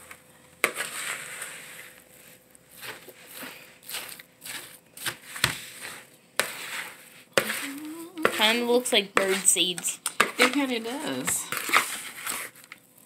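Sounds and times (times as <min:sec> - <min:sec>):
hands mixing crumbly dough rustling: 0:00.0 - 0:13.0.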